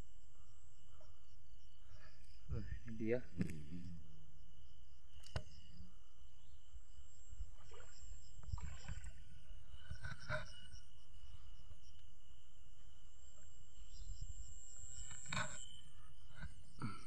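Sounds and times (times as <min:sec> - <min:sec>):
insects trilling: 0:00.0 - 0:17.0
splashes wading in stream: 0:07.4 - 0:09.6.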